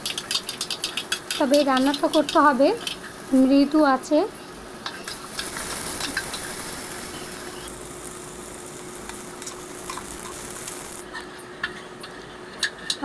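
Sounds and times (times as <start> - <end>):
spatula tapping and scraping: 0.0 - 3.1
onion sizzling in oil: 0.0 - 11.2.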